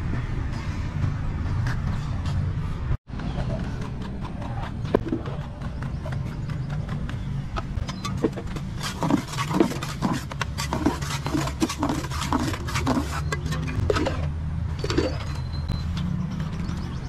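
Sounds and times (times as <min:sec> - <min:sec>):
hand trowel scraping and knocking: 0:07.9 - 0:15.2.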